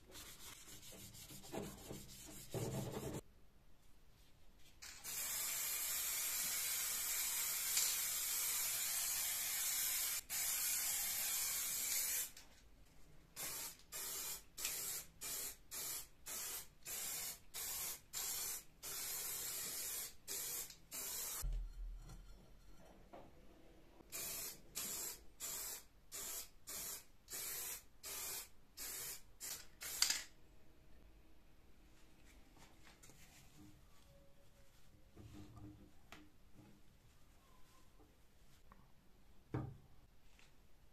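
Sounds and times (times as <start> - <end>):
aerosol spray can spraying: 4.8 - 12.4, 13.4 - 21.4, 24.1 - 30.3.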